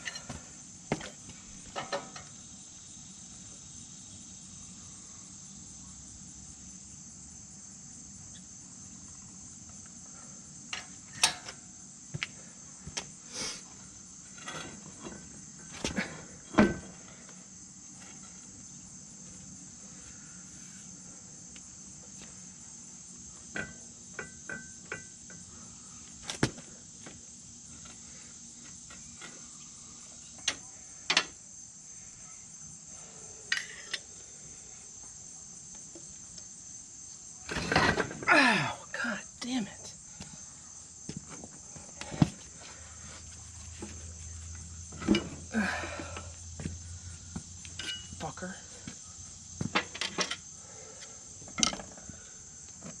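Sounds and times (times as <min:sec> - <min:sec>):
insects chirring: 0:00.0 - 0:53.0.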